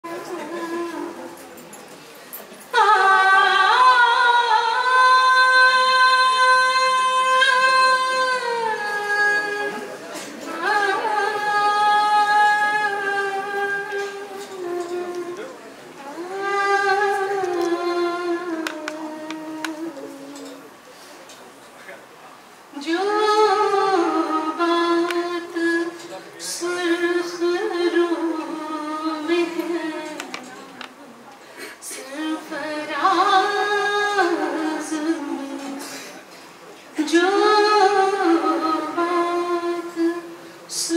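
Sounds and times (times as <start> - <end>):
woman singing unaccompanied: 0.0 - 1.5, 2.7 - 20.6, 22.7 - 31.0, 31.8 - 36.0, 37.0 - 40.9.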